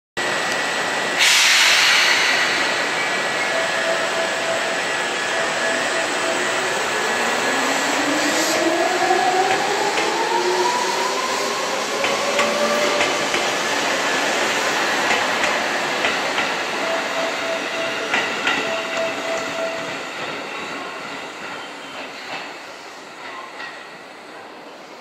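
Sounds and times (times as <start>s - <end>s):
burst of hissing air: 1.2s - 3.3s.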